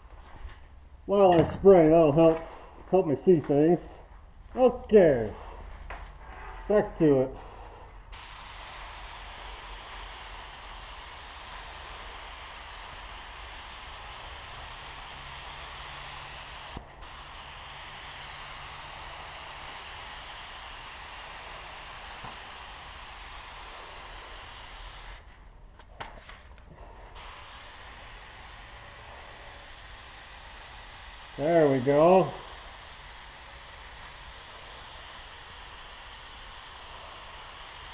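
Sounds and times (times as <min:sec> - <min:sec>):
paint spray gun hissing: 0:08.1 - 0:25.4, 0:27.0 - 0:37.9.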